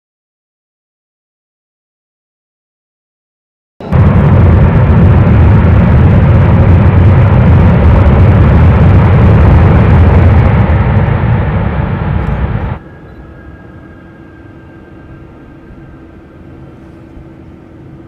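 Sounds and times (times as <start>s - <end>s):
faint high whine: 3.8s - 18.0s
jet engine roar: 3.8s - 18.0s.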